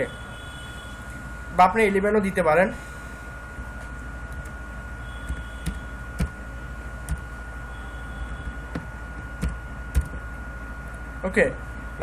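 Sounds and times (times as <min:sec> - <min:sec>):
steady low hum: 0:00.0 - 0:12.0
keyboard keystrokes: 0:05.3 - 0:06.4.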